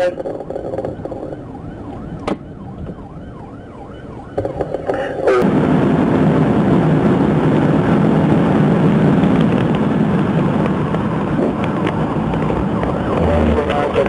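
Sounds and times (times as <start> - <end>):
police siren yelping: 0.0 - 6.0, 9.8 - 14.0
car driving at speed rumble: 0.0 - 14.0.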